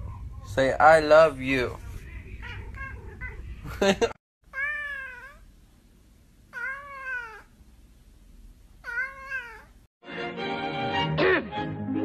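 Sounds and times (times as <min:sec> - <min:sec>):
cat meowing: 0:04.5 - 0:05.5, 0:06.5 - 0:07.5, 0:08.8 - 0:09.8.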